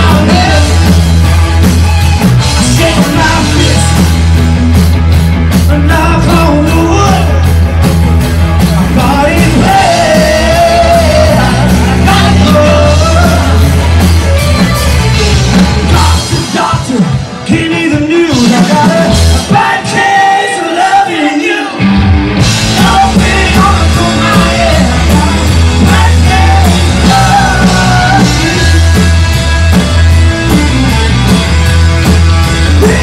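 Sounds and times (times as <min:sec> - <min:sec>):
man singing: 0:00.0 - 0:01.1, 0:02.1 - 0:04.2, 0:05.6 - 0:07.5, 0:08.6 - 0:13.9, 0:15.8 - 0:21.8, 0:22.6 - 0:30.8, 0:32.7 - 0:33.0
rock band playing: 0:00.0 - 0:33.0.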